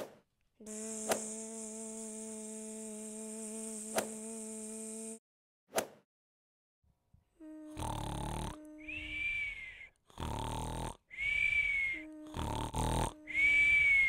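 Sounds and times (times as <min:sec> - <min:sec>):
rasping cartoon snore: 0:07.6 - 0:09.0, 0:10.1 - 0:11.0, 0:12.0 - 0:13.7
high whistle on out-breath: 0:08.7 - 0:10.0, 0:11.1 - 0:12.6, 0:13.2 - 0:14.0.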